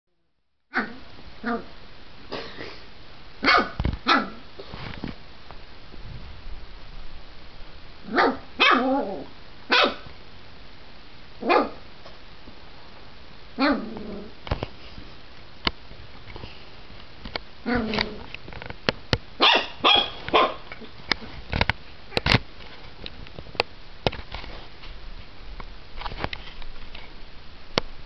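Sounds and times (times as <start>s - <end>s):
puppy barking: 3.4s - 4.4s, 8.1s - 9.1s, 9.7s - 10.1s, 11.4s - 11.8s, 19.4s - 20.7s.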